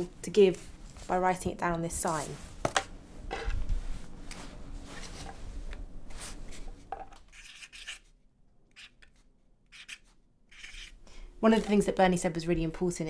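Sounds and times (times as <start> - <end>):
cloth rustling: 1.9 - 6.9
marker writing on cardboard: 7.3 - 8.0, 9.7 - 11.0.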